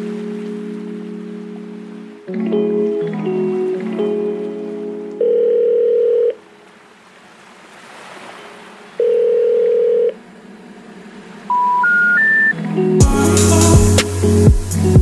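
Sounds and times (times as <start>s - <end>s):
long electronic beeps: 11.5s - 12.6s
short rising beeps: 11.5s - 12.6s.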